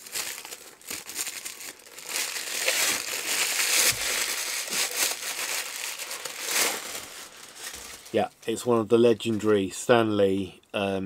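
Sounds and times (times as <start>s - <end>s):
packaging crinkling and rustling: 0.0s - 8.3s.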